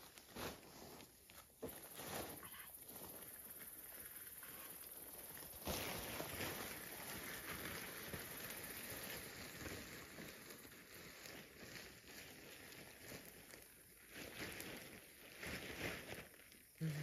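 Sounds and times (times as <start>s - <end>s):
tarp flapping: 0.0s - 16.7s
canvas tarp rustling: 0.0s - 17.0s.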